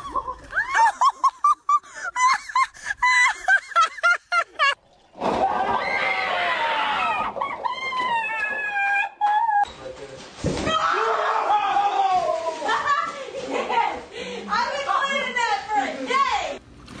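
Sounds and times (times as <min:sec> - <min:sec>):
high-pitched laughter: 0:00.0 - 0:04.8.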